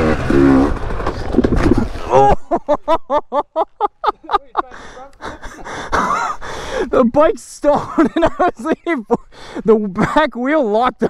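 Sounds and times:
dirt bike engine: 0.0 - 2.7
person laughing: 1.6 - 9.3
person breathing hard: 4.7 - 7.0, 9.3 - 9.7.

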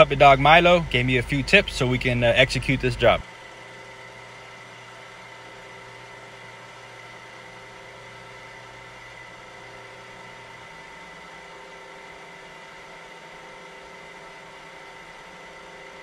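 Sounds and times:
lower hum: 0.0 - 10.7
milling machine motor hum: 0.0 - 16.0.

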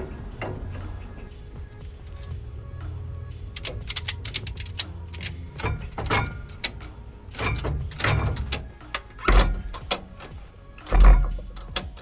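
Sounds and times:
ratchet strap pawl clicking: 3.4 - 12.0.

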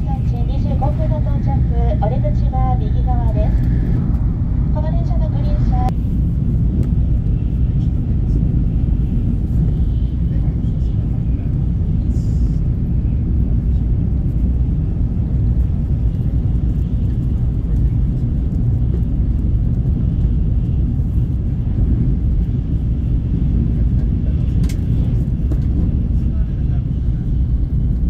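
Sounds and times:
train rumbling inside cabin: 0.0 - 28.0.

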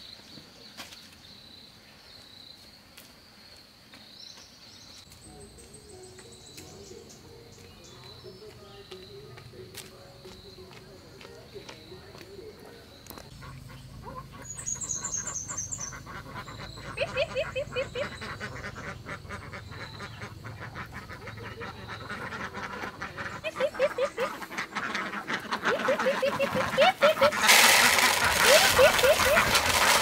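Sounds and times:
ducks quacking: 11.5 - 30.0.

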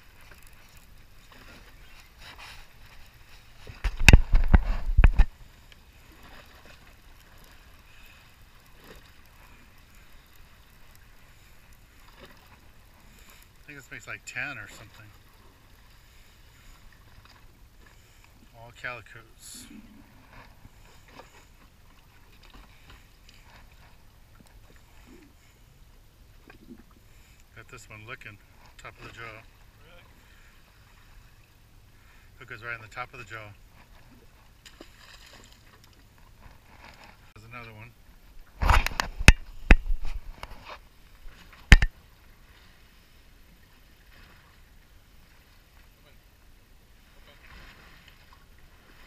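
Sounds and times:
low rumble of wind: 0.0 - 13.8, 14.8 - 27.6, 33.5 - 49.0
water around a boat: 0.0 - 49.0
sharp knocks and clatters: 41.7 - 41.9.

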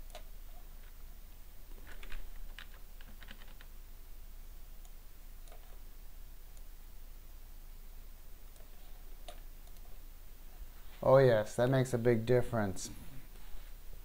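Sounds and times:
keyboard keys tapping: 1.8 - 3.7.

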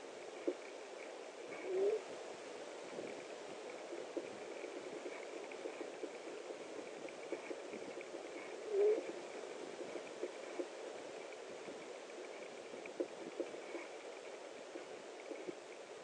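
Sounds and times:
steady hiss: 0.0 - 16.0
faint clicks: 0.2 - 2.0, 2.8 - 16.0
owl hooting: 1.5 - 2.0, 8.4 - 9.2.

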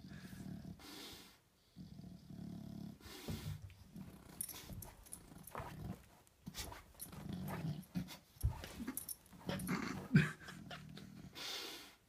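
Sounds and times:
dog grunting: 7.0 - 11.4.

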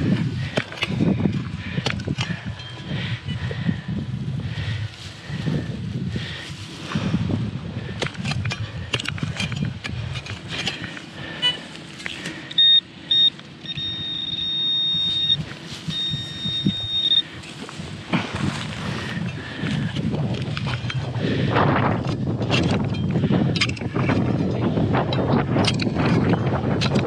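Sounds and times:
metal detector beeping: 2.5 - 3.4, 11.4 - 17.9
digging tool scraping hard soil: 7.9 - 12.4, 17.3 - 21.1.

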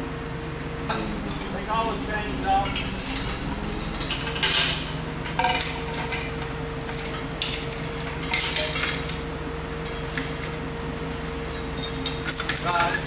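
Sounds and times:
low mechanical hum: 0.0 - 13.0
metal parts clinking and rattling: 2.6 - 9.2, 10.1 - 13.0.

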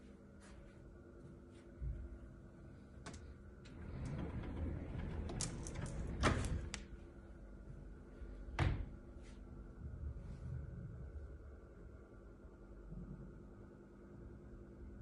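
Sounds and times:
door rattling clicks and knocks: 3.1 - 6.9.

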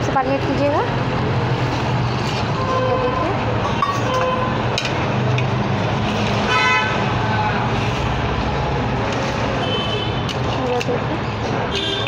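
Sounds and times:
vehicle horn toot: 6.5 - 7.0, 11.7 - 12.0.

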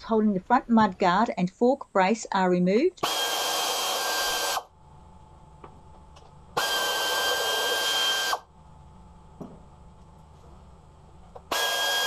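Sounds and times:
power tool whine: 3.0 - 4.7, 6.6 - 8.5, 11.5 - 12.0.

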